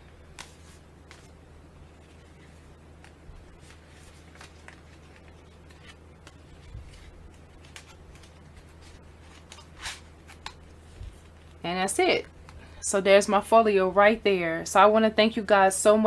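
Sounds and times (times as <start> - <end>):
paper rustling and sliding: 0.3 - 1.3, 2.0 - 11.4.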